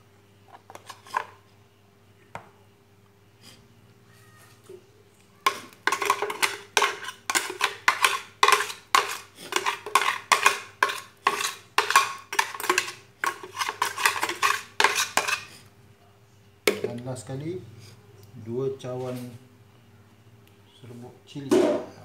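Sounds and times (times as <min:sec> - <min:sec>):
metal spoon scraping blender jug: 0:05.5 - 0:15.6.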